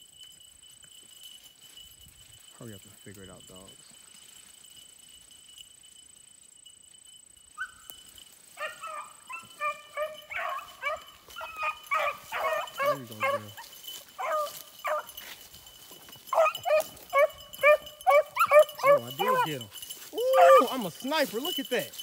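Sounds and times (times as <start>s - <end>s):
hounds baying and yelping: 7.5s - 22.0s.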